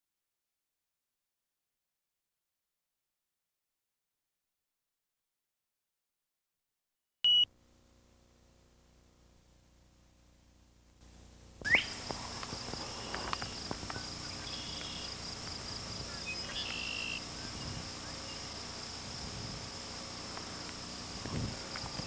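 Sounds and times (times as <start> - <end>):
high-pitched insect chorus: 7.9 - 22.0
short bird calls: 11.6 - 15.2, 15.9 - 18.6.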